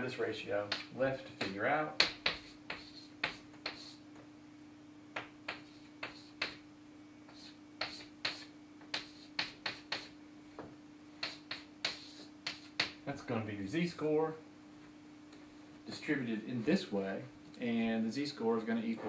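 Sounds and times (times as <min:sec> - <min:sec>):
steady low hum: 0:00.0 - 0:19.0
chalk tapping on blackboard: 0:00.7 - 0:04.0, 0:05.2 - 0:06.6, 0:07.3 - 0:10.2, 0:11.2 - 0:13.0.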